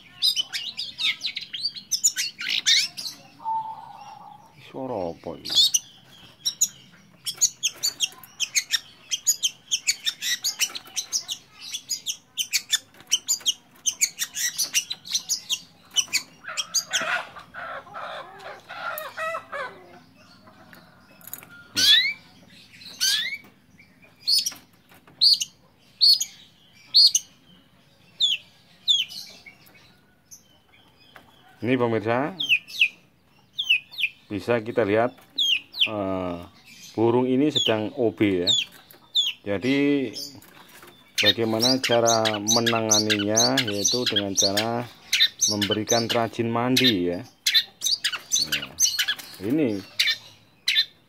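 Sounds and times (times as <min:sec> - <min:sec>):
bird chirping and whistling: 0:00.2 - 0:04.5, 0:21.8 - 0:22.2, 0:41.1 - 0:46.2, 0:49.9 - 0:51.0.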